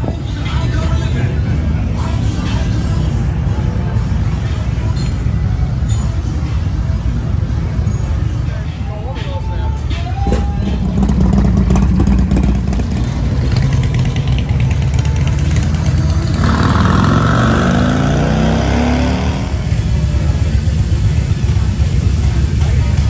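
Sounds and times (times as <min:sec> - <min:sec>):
motorcycle engines rumbling: 0:00.0 - 0:23.0
motorcycle accelerating: 0:10.3 - 0:23.0.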